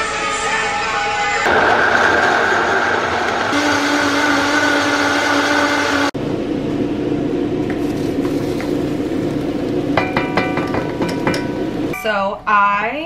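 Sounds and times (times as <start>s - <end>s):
blender running: 1.5s - 6.2s.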